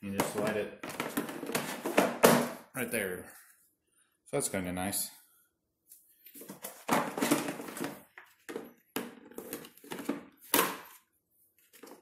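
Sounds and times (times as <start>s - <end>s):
plastic tray clattering and scraping: 0.1s - 2.6s, 6.4s - 11.0s.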